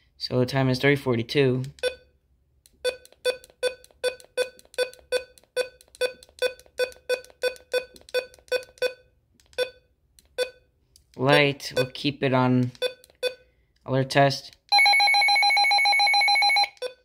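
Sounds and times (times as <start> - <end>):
short keypad beeps: 1.8 - 2.1, 2.8 - 9.0, 9.6 - 9.8, 10.4 - 10.6.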